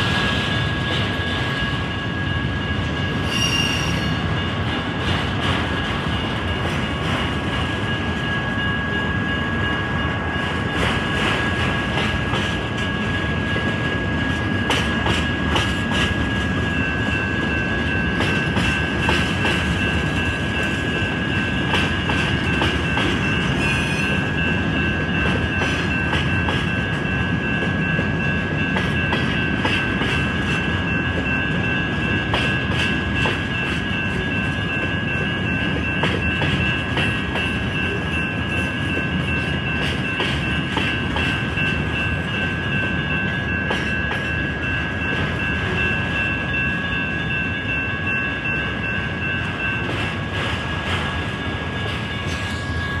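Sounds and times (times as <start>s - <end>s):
freight train rumbling: 0.0s - 53.0s
high wheel squeal: 3.2s - 4.2s.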